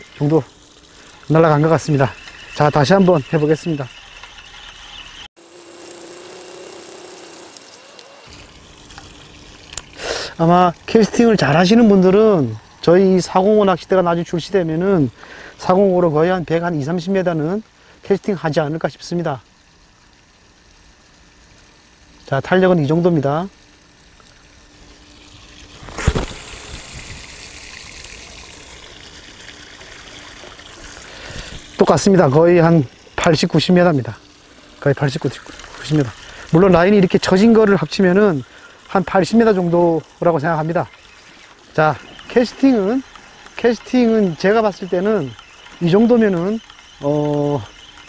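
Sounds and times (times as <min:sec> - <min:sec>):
light hiss: 0:00.0 - 0:45.9
fishing line whirring off reel: 0:01.1 - 0:10.0, 0:25.0 - 0:33.8, 0:34.6 - 0:48.0.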